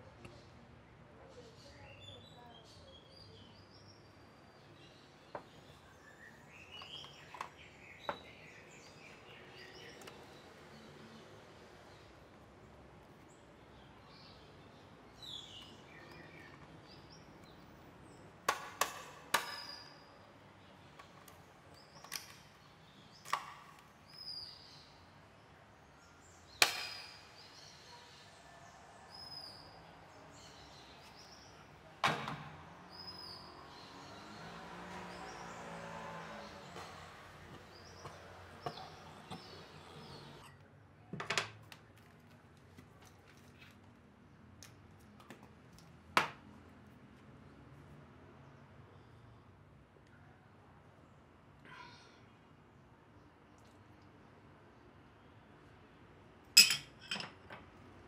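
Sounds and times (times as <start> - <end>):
birds chirping: 1.4 - 18.4, 19.3 - 40.5.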